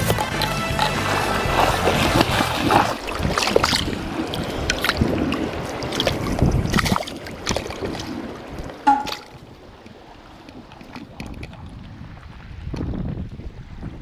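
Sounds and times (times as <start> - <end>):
splashes and knocks: 0.0 - 9.5
stream water rushing: 0.0 - 10.9
wind buffeting microphone: 1.1 - 14.0.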